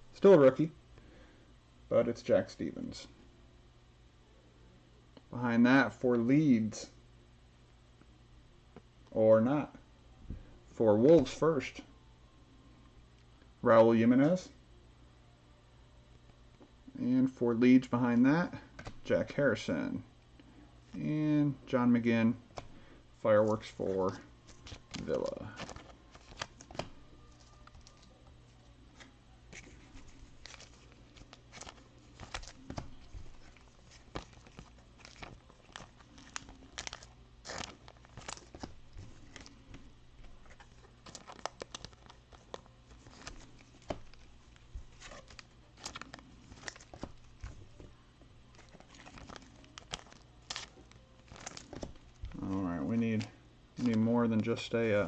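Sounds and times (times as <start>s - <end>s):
wrapper tearing and crinkling: 29.6s - 39.6s, 40.3s - 47.7s, 48.5s - 52.5s.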